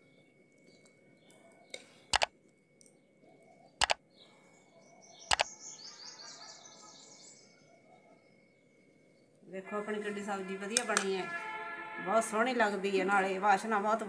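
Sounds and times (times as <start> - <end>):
birds chirping faintly: 0.0 - 9.5.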